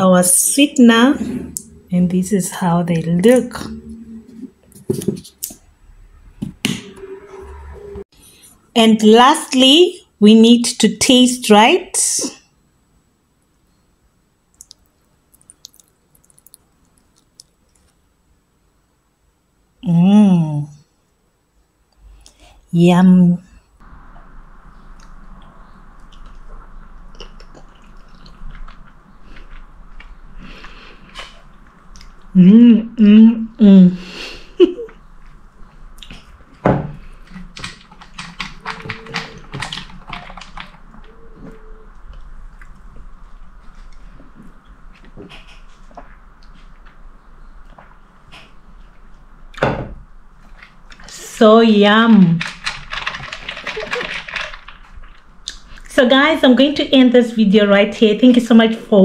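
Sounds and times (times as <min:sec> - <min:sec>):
spoon and mouth clicks: 0:14.6 - 0:17.9.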